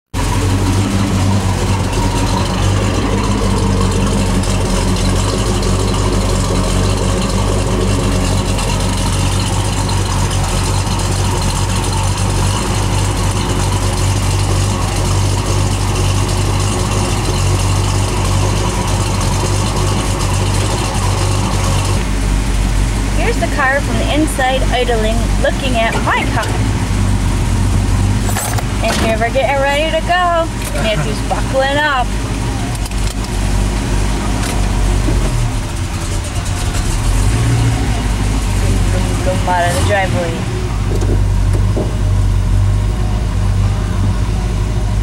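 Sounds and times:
car engine idling: 0.1 - 45.0.

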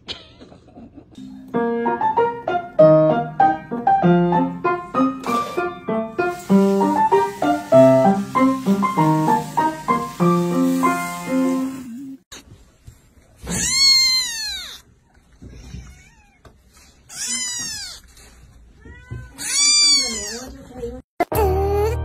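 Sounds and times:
piano music: 1.2 - 12.1, 21.3 - 22.0
kitten meowing: 13.5 - 14.8, 17.1 - 18.0, 18.8 - 20.5.

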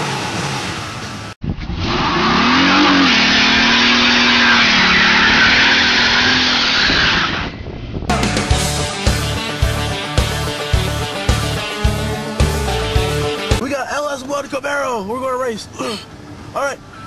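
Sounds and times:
engine at high revs: 1.9 - 7.5
tyres squealing loudly: 2.2 - 7.4
rock music with electric guitar: 8.1 - 13.6.

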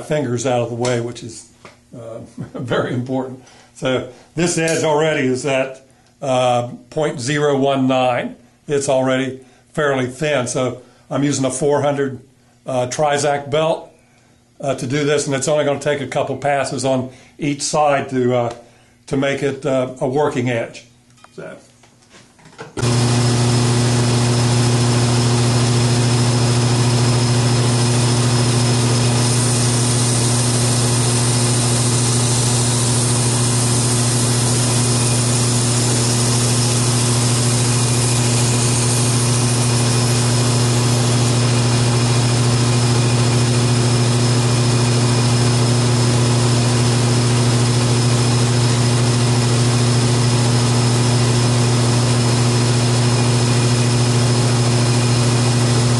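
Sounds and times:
belt grinder motor humming: 22.8 - 55.9.

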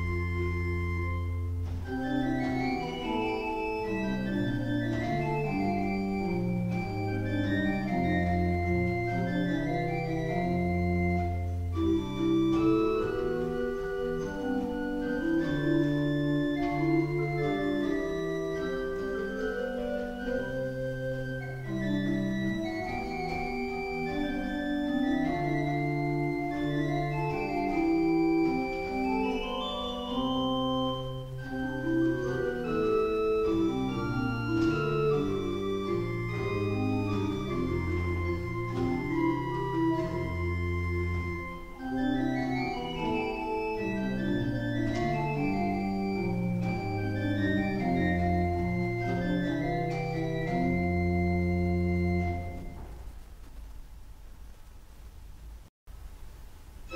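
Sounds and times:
pipe organ playing: 0.0 - 53.0.

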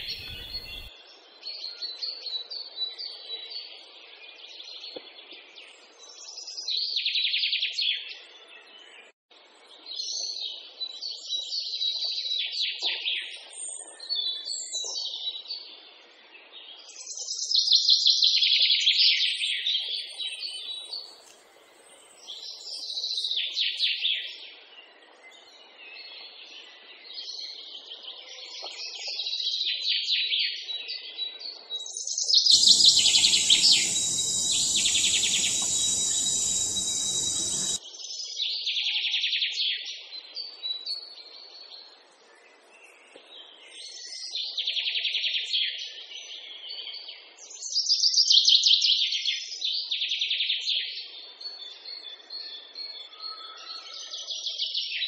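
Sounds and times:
songbird chirping and trilling: 0.0 - 0.9, 31.9 - 37.8
steady hiss: 0.0 - 0.9, 32.5 - 37.8.

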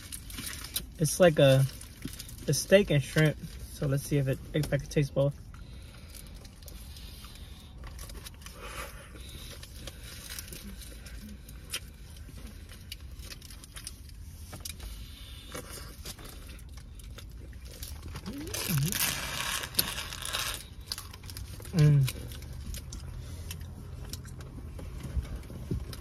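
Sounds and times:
low steady rumble: 0.0 - 26.0
person chewing: 5.5 - 26.0
foil wrapper crinkling: 15.7 - 23.0.

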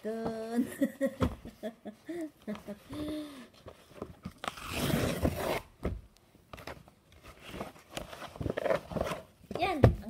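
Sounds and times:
cardboard ripping: 4.4 - 5.8, 7.3 - 9.3.

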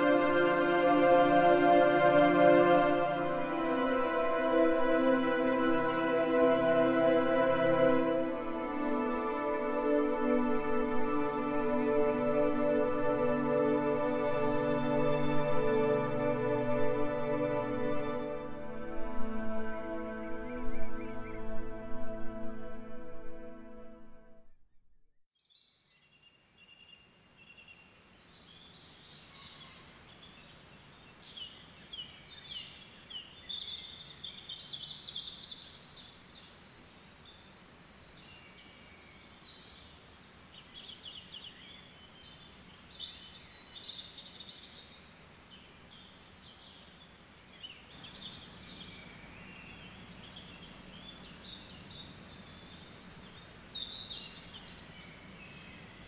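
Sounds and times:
faint steady hiss: 0.0 - 23.6, 25.6 - 56.0
small birds singing: 25.4 - 56.0.

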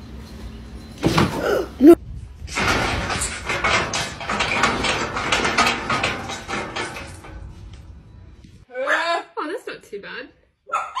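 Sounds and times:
metal gate rattling: 2.4 - 8.6.

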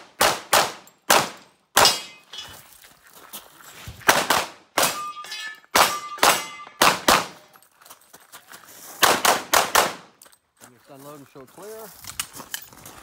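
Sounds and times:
pistol shots: 0.1 - 2.2, 4.1 - 5.1, 5.7 - 7.4, 9.0 - 10.1
steel targets ringing: 1.8 - 2.6, 4.8 - 7.0.

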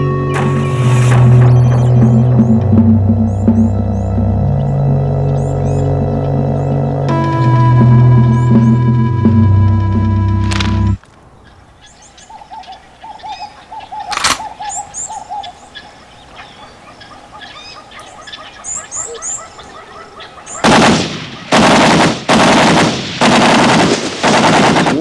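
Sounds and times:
birds chirping: 0.0 - 21.6
sharp crack: 14.1 - 14.5, 20.6 - 25.0
machine gun bursts: 20.6 - 25.0.

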